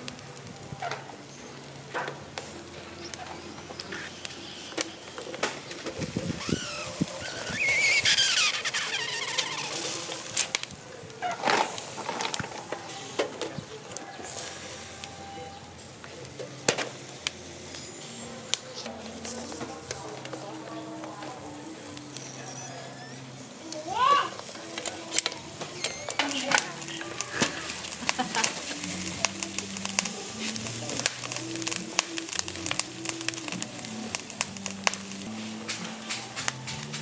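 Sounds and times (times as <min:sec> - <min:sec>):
crackling coals and shells: 0:00.0 - 0:37.0
wavering high squeal: 0:06.4 - 0:09.8.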